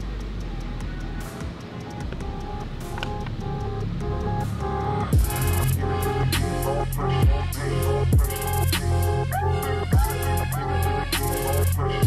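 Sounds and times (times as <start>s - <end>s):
sliding synth notes: 0.0s - 12.0s
ticking hi-hats: 0.0s - 12.0s
deep booming kick drum: 5.2s - 5.4s, 7.2s - 7.5s.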